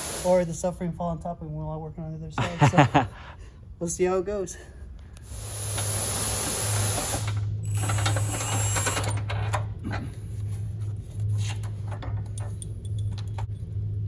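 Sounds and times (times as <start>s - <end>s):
steady low hum: 0.0s - 14.0s
ratchet clicking: 5.6s - 9.3s.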